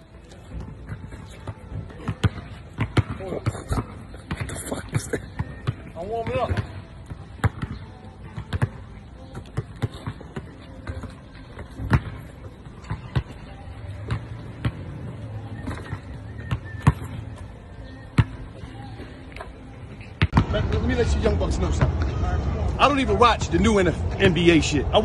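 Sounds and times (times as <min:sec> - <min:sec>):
basketball bouncing on asphalt: 0:00.6 - 0:04.6, 0:05.2 - 0:15.0, 0:15.6 - 0:17.5, 0:20.2 - 0:20.5.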